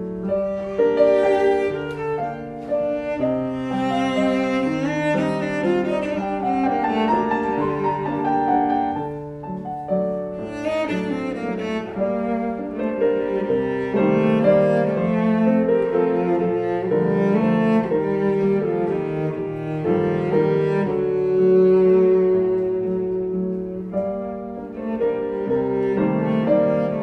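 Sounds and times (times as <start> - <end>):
bowed cello: 0.0 - 27.0
piano playing: 0.0 - 27.0.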